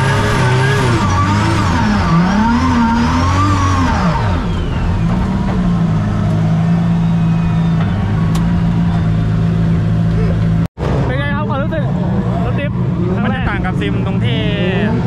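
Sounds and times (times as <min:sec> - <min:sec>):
race car engine: 0:00.0 - 0:15.0.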